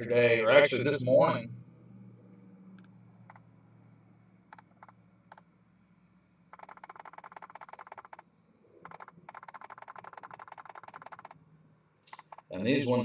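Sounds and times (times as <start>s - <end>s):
laptop keyboard typing: 4.5s - 5.4s, 6.5s - 8.2s, 8.8s - 11.4s, 12.1s - 12.5s.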